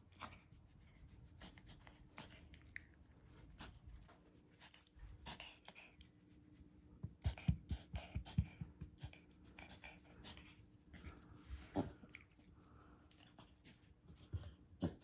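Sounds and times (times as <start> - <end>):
dog sharp inhalations: 3.4 - 6.2, 7.2 - 13.8.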